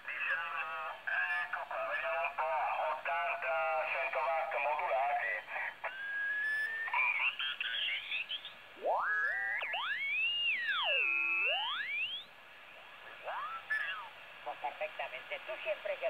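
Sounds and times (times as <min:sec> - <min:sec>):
radio heterodyne whistles: 0:05.9 - 0:07.0, 0:08.3 - 0:12.4, 0:13.3 - 0:14.1
garbled sideband signals: 0:08.8 - 0:12.2, 0:13.3 - 0:14.1.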